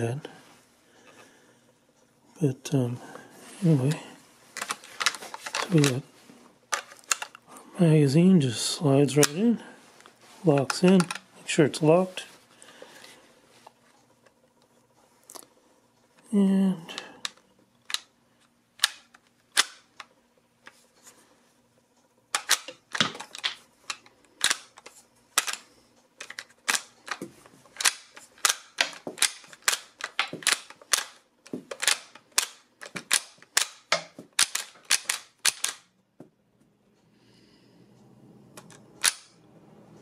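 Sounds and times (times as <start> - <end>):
rifle lever action clicking: 27.8 - 35.8.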